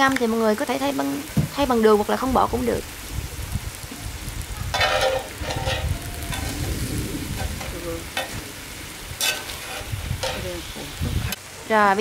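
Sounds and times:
food sizzling in a pan: 0.0s - 12.0s
metal tongs scraping pan: 4.7s - 6.8s, 7.4s - 8.6s, 9.2s - 10.8s.

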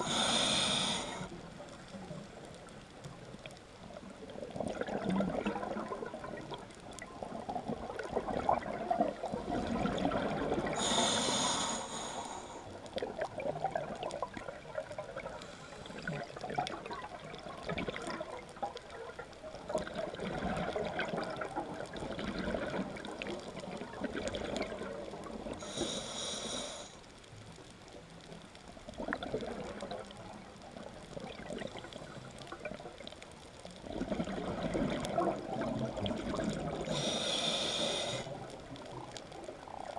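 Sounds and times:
regulator hissing inhalations: 0.0s - 1.3s, 10.8s - 12.7s, 25.6s - 27.0s, 36.9s - 38.4s
exhaled air bubbling: 0.0s - 26.4s, 28.9s - 39.9s.

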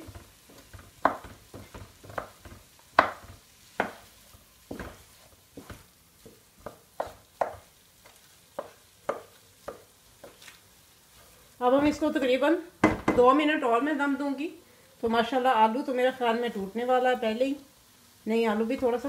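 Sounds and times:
wooden spatula scraping a wok: 0.0s - 12.4s.

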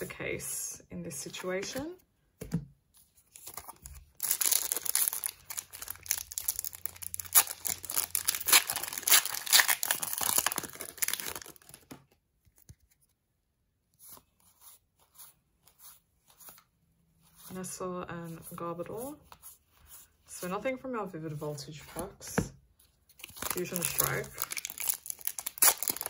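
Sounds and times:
foil wrapper tearing and crinkling: 3.4s - 12.0s, 23.2s - 26.0s.

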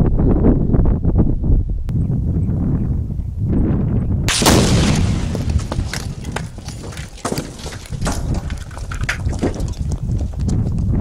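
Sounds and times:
debris landing knocks and clicks: 4.3s - 10.0s.

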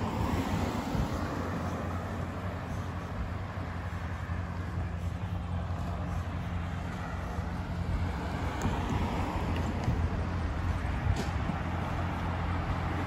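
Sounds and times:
outdoor noise: 0.0s - 13.0s
vehicle engine rumbling: 0.0s - 13.0s.

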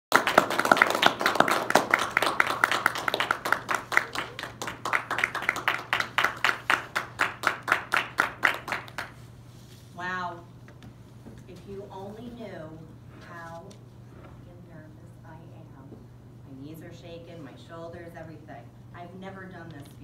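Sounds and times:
small group applauding: 0.1s - 9.3s.

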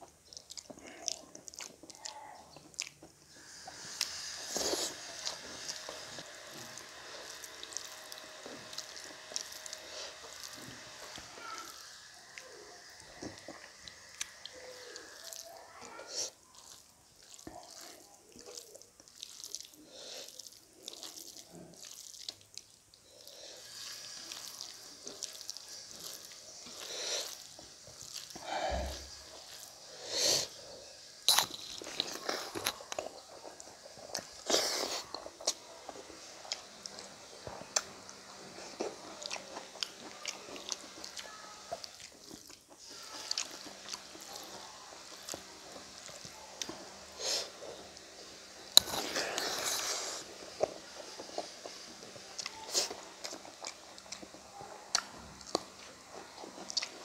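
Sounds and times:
chewing and crunching: 0.0s - 57.0s
fingers squishing rice on metal plate: 0.3s - 30.6s.

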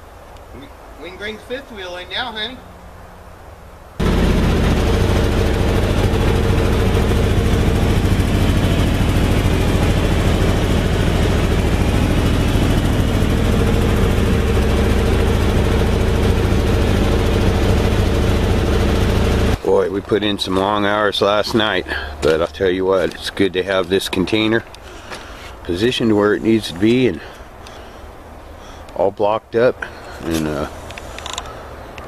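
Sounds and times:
truck engine idling: 4.0s - 23.6s.

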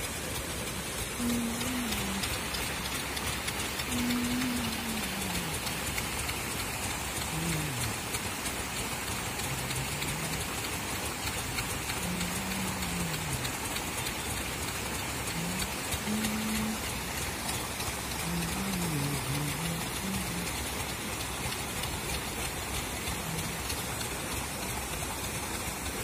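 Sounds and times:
aerators splashing water: 0.0s - 26.0s.

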